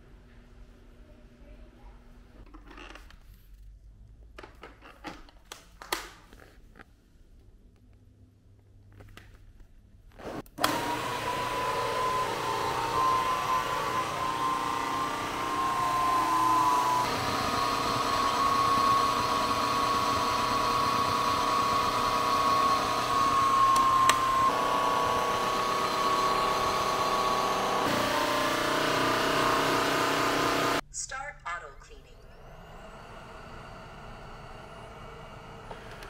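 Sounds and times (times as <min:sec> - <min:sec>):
vacuum cleaner whining: 0:10.2 - 0:30.8, 0:32.2 - 0:36.0.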